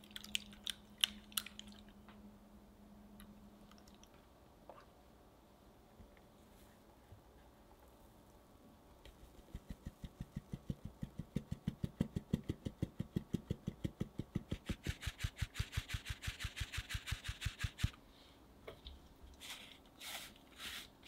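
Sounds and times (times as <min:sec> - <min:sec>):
flour rustling through mesh: 0:19.4 - 0:21.0.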